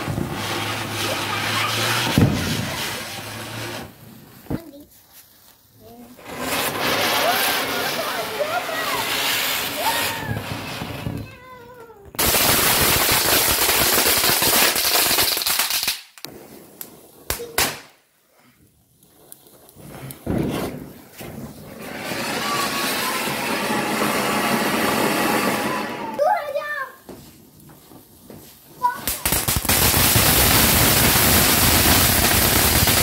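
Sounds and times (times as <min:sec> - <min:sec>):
fireworks rushing hiss: 0:00.0 - 0:11.6, 0:12.2 - 0:33.0
sharp cracks: 0:29.0 - 0:33.0.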